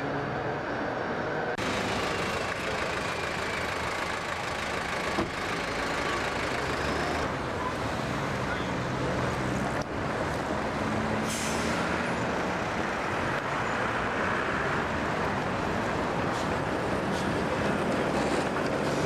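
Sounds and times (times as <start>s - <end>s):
bus and car engines: 0.0s - 19.0s
air brake hiss: 11.2s - 11.9s.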